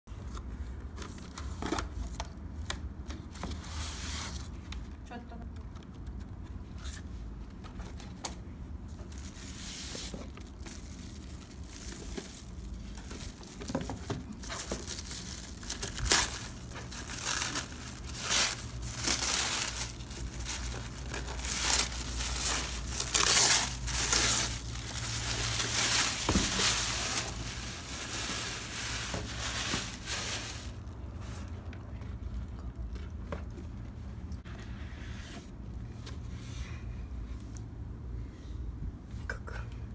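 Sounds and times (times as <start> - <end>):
tissue paper crinkling and tearing: 9.0 - 30.9.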